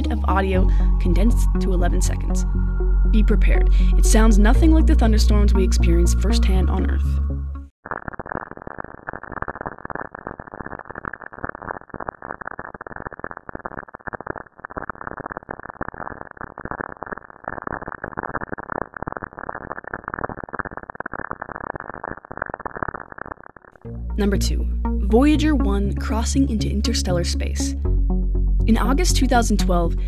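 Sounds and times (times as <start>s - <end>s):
dense crackle of pops and clicks: 7.8s - 23.8s.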